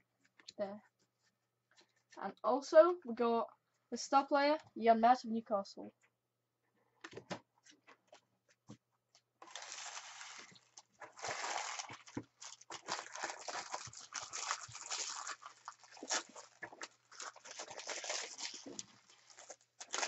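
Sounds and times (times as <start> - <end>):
foil wrappers crinkling: 9.4 - 20.0.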